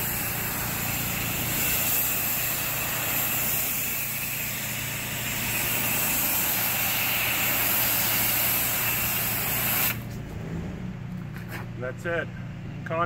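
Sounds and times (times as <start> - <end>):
water spray hissing on wall: 0.0 - 10.1
engine running: 0.0 - 13.0.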